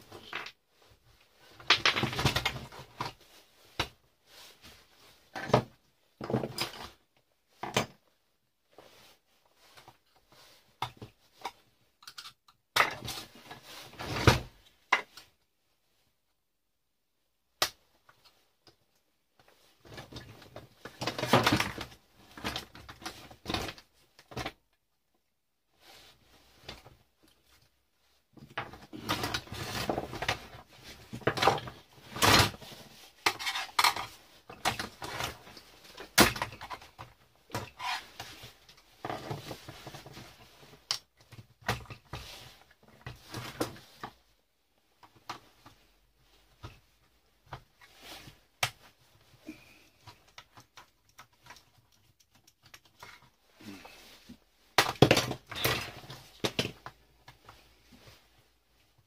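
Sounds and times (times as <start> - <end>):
metal and plastic parts clattering: 28.5 - 42.4.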